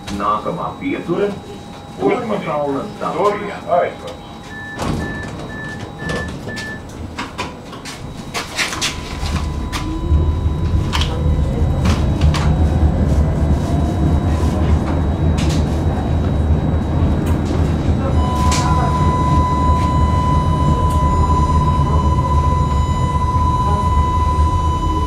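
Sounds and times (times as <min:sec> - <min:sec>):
tram motor whining: 0:00.0 - 0:25.0
short warning beeps: 0:02.0 - 0:06.8, 0:08.1 - 0:12.0, 0:18.0 - 0:25.0
wheels rumbling on rails: 0:04.2 - 0:25.0
doors closing with clunks: 0:04.5 - 0:10.1.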